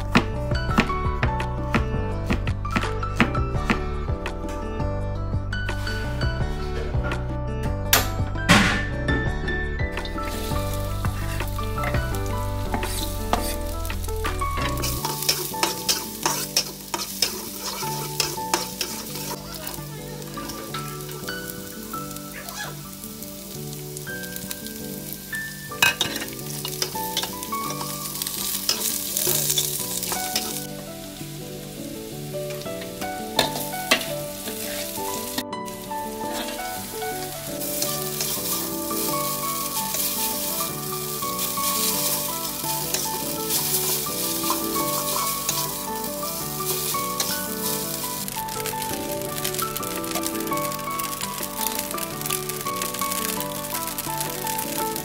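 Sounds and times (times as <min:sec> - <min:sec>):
vegetables sizzling in hot oil: 0:10.1 - 0:55.0
metal spatula scraping a pan: 0:10.2 - 0:14.0, 0:14.6 - 0:21.6, 0:25.8 - 0:30.7, 0:32.8 - 0:35.4, 0:36.1 - 0:50.2.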